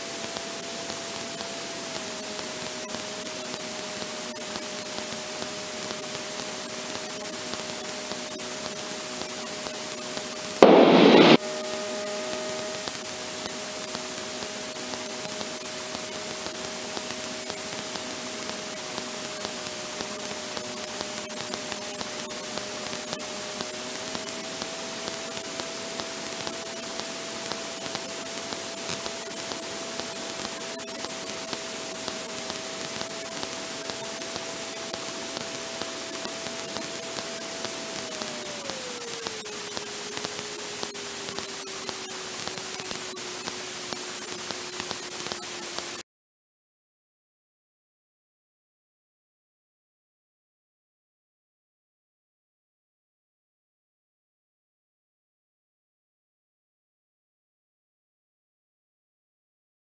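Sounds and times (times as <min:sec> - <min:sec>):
burst of static: 0:00.5 - 0:46.0.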